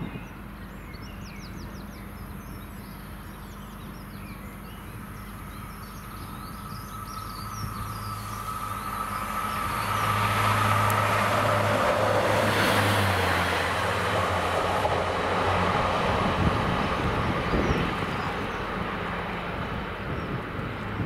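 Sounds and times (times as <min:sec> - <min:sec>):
diesel engine drone: 0:00.0 - 0:21.0
train wheels rumbling on rails: 0:07.2 - 0:21.0.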